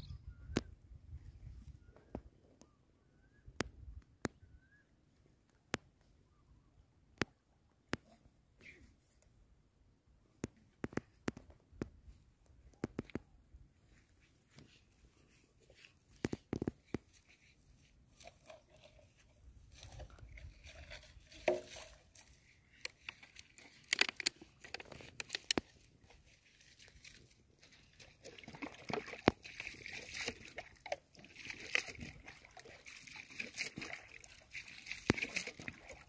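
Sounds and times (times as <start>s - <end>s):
water sloshing and splashing: 13.8s - 36.0s.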